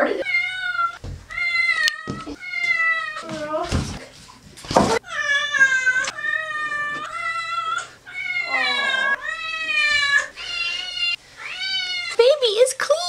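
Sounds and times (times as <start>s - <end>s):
cat yowling: 5.0s - 12.2s.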